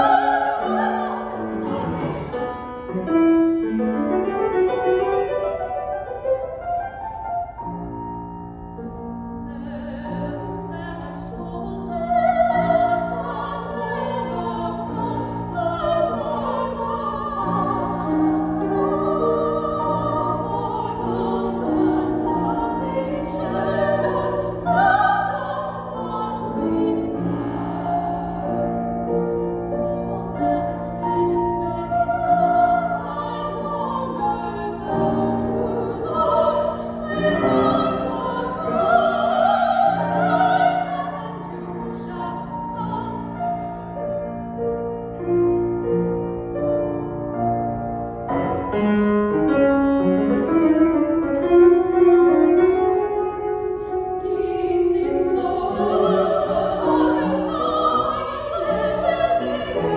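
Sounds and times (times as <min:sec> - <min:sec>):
sopranos singing operatic duet: 0:00.0 - 0:02.5, 0:09.4 - 0:43.9, 0:54.1 - 0:59.9
grand piano: 0:00.0 - 0:59.9.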